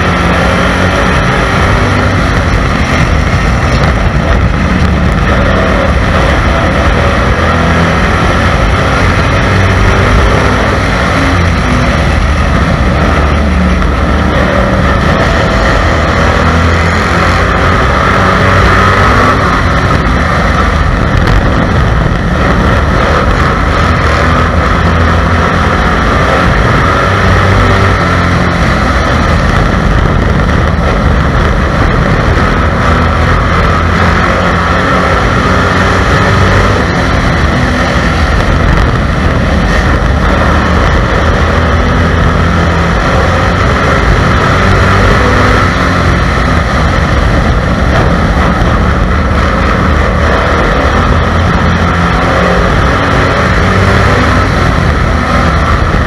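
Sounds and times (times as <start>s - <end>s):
race car engine running hard: 0.0s - 56.0s.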